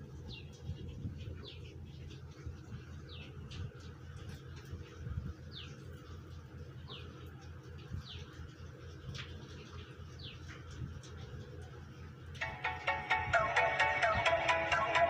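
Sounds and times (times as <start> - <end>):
small birds chirping: 0.2 - 4.6, 5.4 - 11.6.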